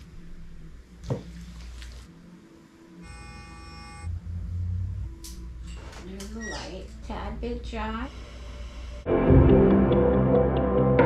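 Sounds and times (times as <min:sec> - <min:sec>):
quiet background music: 0:00.0 - 0:11.0
low droning bass: 0:04.1 - 0:06.0, 0:09.0 - 0:11.0.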